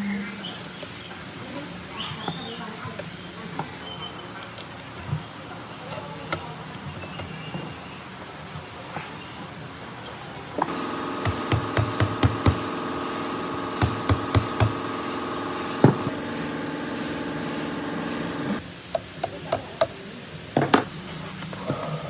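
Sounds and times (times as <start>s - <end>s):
steady held tone: 10.7s - 18.6s
sharp knocks on metal fan: 11.2s - 12.6s, 13.8s - 14.8s.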